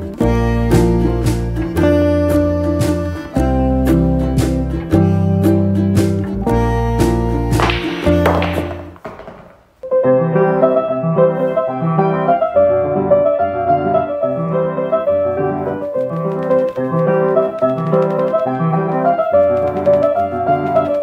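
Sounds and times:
calm solo piano piece: 9.8s - 21.0s.

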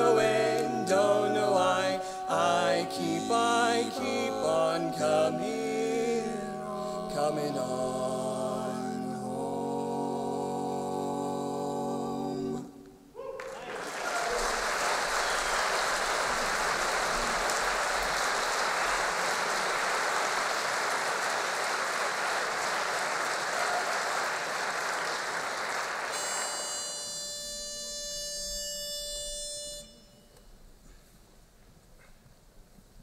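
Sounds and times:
audience applauding: 13.3s - 26.7s
pitch pipe note: 26.2s - 30.7s.

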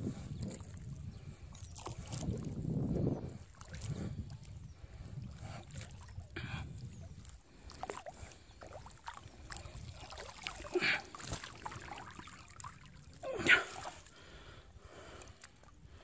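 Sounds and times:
water splashing and dripping: 7.2s - 14.1s.

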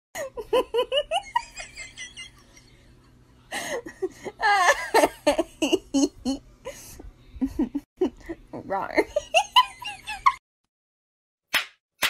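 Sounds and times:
person laughing: 3.5s - 8.5s.

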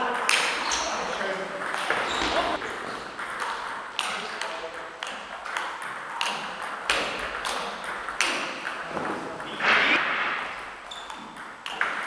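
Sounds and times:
burst of noise: 9.5s - 10.8s.

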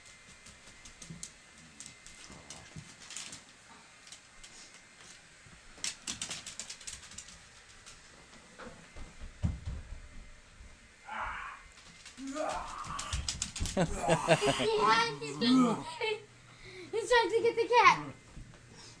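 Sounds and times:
dog claws clicking on wooden floor: 0.0s - 4.6s, 5.8s - 8.2s, 11.8s - 13.8s.

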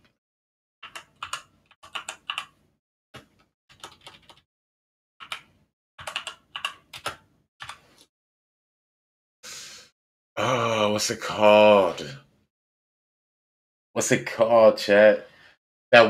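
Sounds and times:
typing on computer keyboard: 0.8s - 2.5s, 3.2s - 4.4s, 5.2s - 7.8s.

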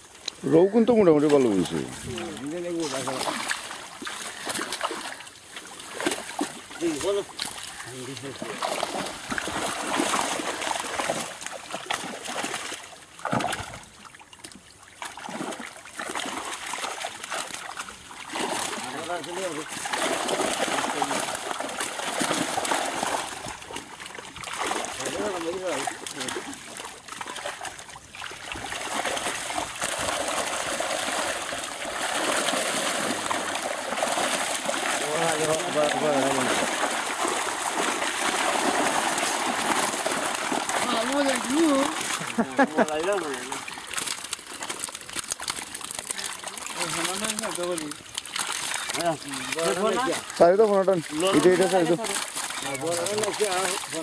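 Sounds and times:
water splashing and sloshing: 0.0s - 54.0s.

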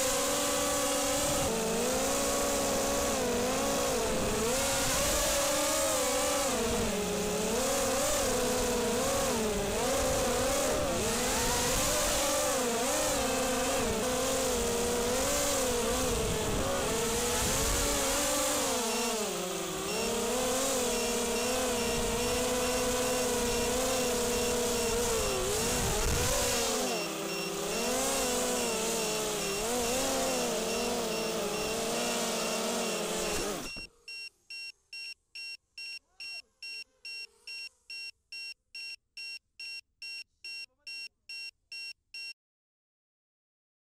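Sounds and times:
drone motors buzzing whine: 0.0s - 34.2s
wind rush on microphone: 16.0s - 18.0s, 25.3s - 26.4s
quick electronic beeping: 26.6s - 42.4s.

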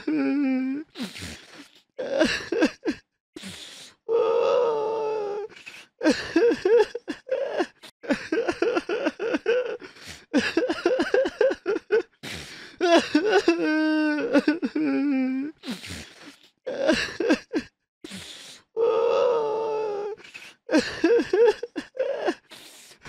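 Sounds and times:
person sobbing: 0.0s - 0.9s, 2.0s - 3.0s, 4.1s - 15.6s, 16.7s - 17.7s, 18.8s - 22.5s
person wailing: 18.8s - 22.4s.

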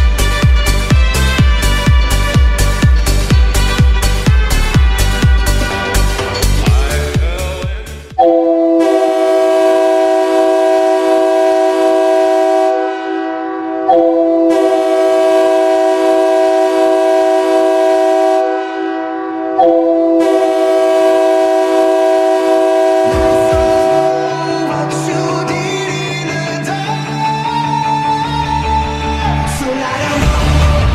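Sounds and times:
goal horn blasts: 0.0s - 6.5s, 8.2s - 25.6s.

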